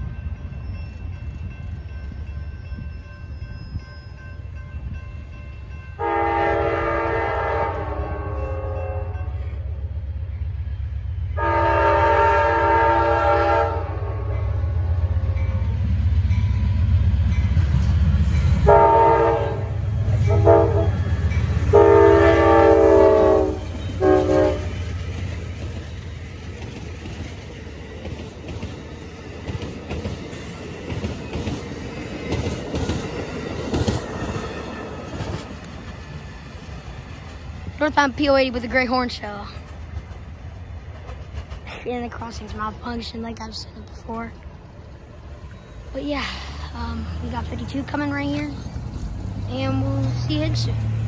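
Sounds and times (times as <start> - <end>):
locomotive air horn: 6.0 - 9.2, 11.4 - 14.4, 18.6 - 21.0, 21.7 - 24.8
wheels clacking over rail joints: 19.8 - 51.0.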